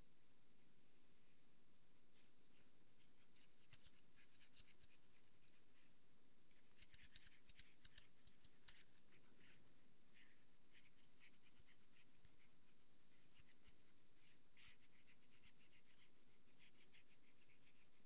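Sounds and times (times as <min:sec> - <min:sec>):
faint scratching: 0:02.1 - 0:18.0
light ticks of pointing device: 0:03.2 - 0:05.7, 0:06.5 - 0:09.6, 0:10.8 - 0:13.9.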